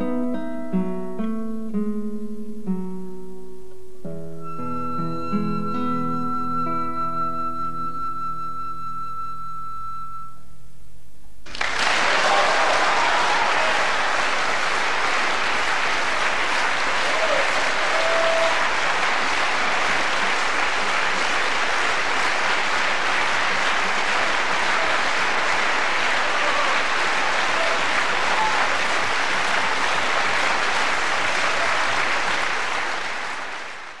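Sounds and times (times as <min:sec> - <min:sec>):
audience applauding: 0:11.5 - 0:34.0.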